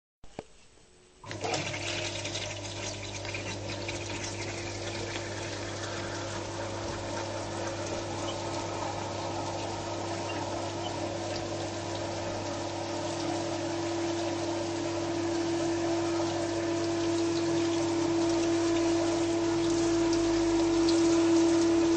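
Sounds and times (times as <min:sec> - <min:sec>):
dishwasher pump humming: 0:01.2 - 0:21.9
water spraying against dishes: 0:01.4 - 0:13.8.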